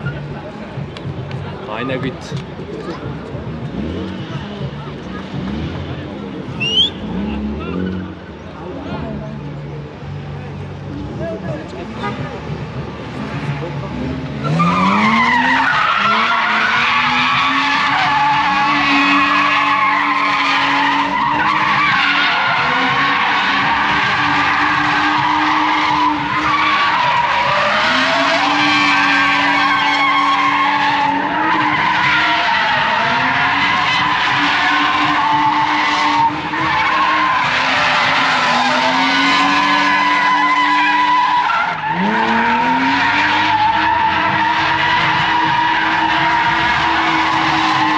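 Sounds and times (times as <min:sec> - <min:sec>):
car engine revving: 0:00.0 - 0:47.9
tyres squealing: 0:06.5 - 0:08.6, 0:11.8 - 0:47.9.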